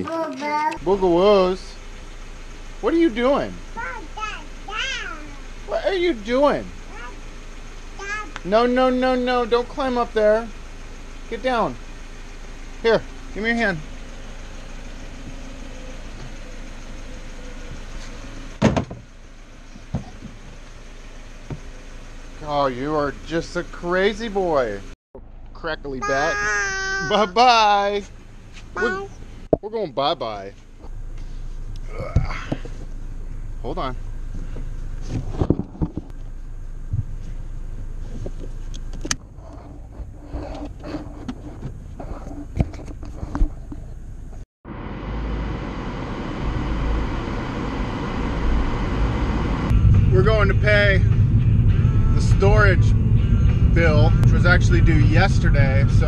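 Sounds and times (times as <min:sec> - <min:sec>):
low background hum: 0:00.0 - 0:44.4
steady low hum: 0:27.0 - 0:56.0.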